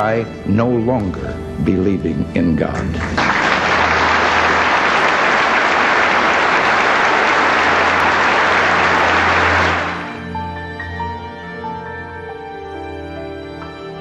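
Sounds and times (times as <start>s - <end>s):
soft background music: 0.0s - 5.0s, 7.7s - 14.0s
audience applauding: 3.0s - 10.4s.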